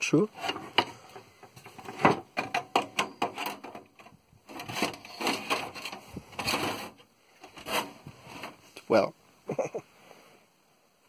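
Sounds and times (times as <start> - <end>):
scraping and rustling: 0.3 - 8.9
clicks and knocks: 0.4 - 6.8.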